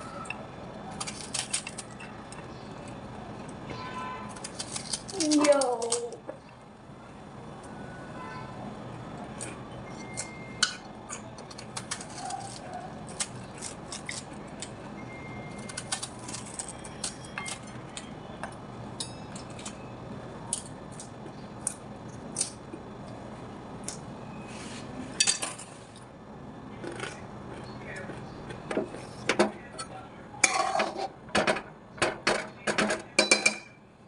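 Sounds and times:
steady low hum: 0.0 - 34.0
cabbage leaves tearing and snapping: 0.9 - 2.0, 4.3 - 6.2, 11.4 - 14.8, 15.5 - 17.7.

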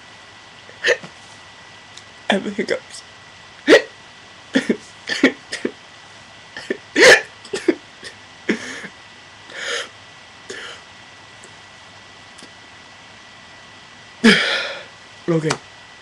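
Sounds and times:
man hiccuping: 0.8 - 1.1, 3.6 - 4.0, 6.6 - 8.8.

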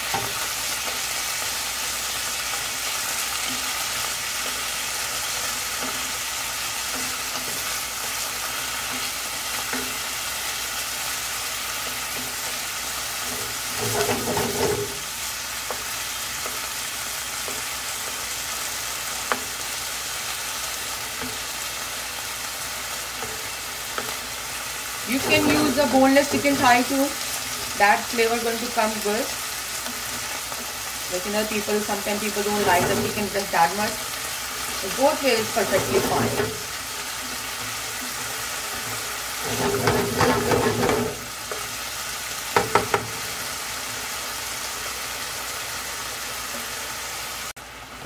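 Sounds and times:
wooden spatula stirring in pan: 0.0 - 44.2
chicken sizzling in oil: 0.0 - 48.0
spatula tapping pan: 42.5 - 43.3.

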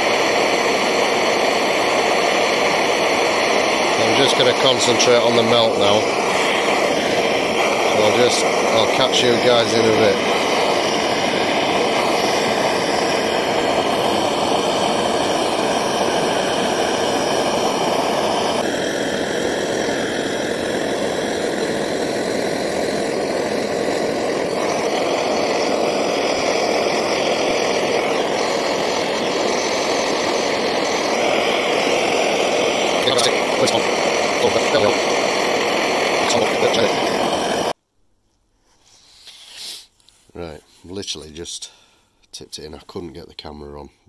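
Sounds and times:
blowtorch flame hissing: 0.0 - 37.8, 38.9 - 39.9.

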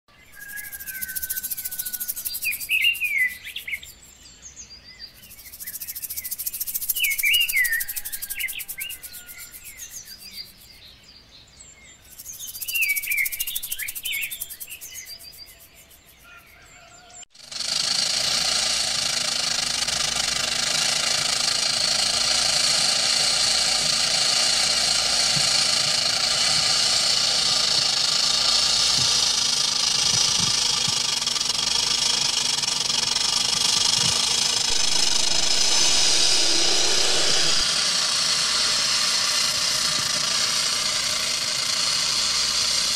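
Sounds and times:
pulsing insect chorus: 0.4 - 4.0, 5.3 - 10.6, 12.2 - 16.0, 17.4 - 37.8
loud dense drone: 34.7 - 37.8.

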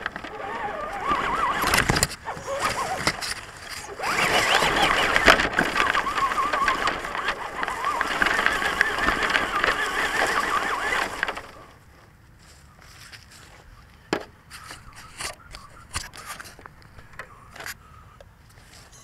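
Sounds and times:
electric motor whining: 0.0 - 11.7
toy truck driving through grass: 0.0 - 19.0.

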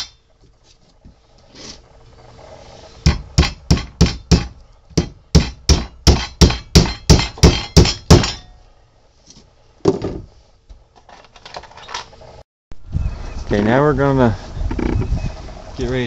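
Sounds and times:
hammer striking nails into wood: 3.1 - 8.5.

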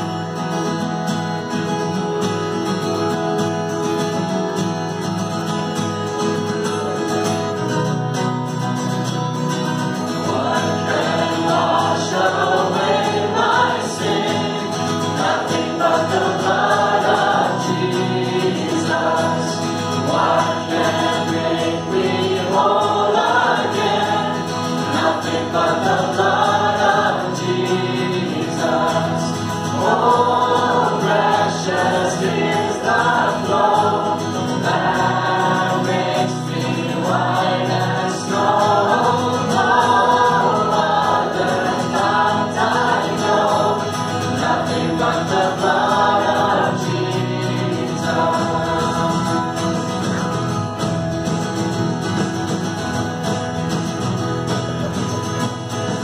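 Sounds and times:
band with acoustic guitar: 0.0 - 56.0
people singing: 10.0 - 52.2.

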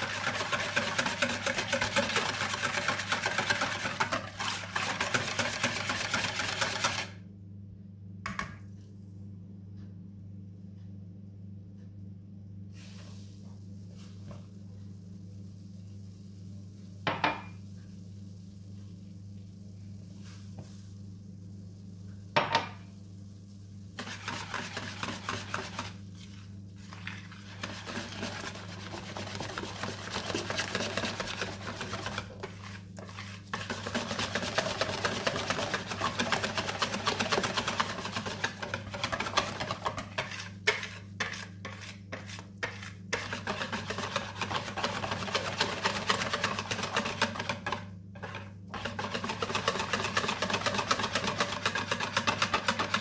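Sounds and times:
whisk scraping plastic bowl: 0.0 - 7.1, 24.0 - 53.0.

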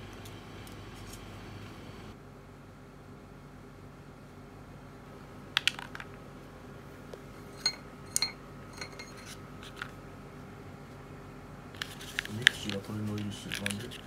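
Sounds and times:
clinks against ceramic plate: 7.5 - 9.3.

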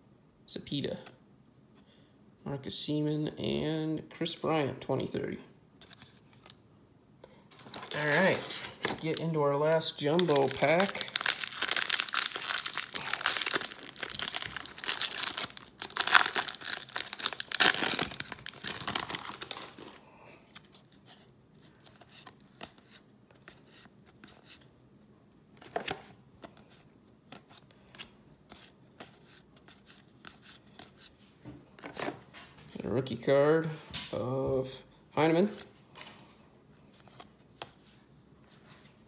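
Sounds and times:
card wrapper tearing and crinkling: 7.6 - 20.0.

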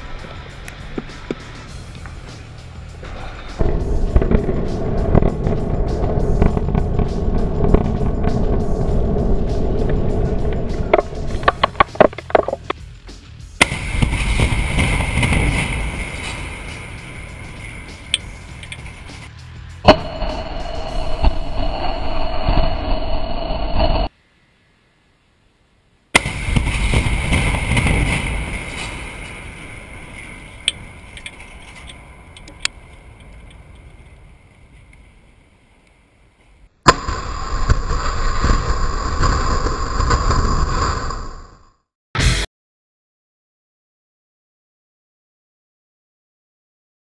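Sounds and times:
rumble of collapsing concrete: 3.0 - 12.8, 13.7 - 19.1, 26.2 - 34.2
sharp explosive blast: 3.6 - 11.6, 13.6 - 19.2, 19.8 - 24.1, 26.2 - 31.5, 36.9 - 41.1
sharp cracks: 9.7 - 12.8, 13.6 - 19.3, 26.2 - 41.4.

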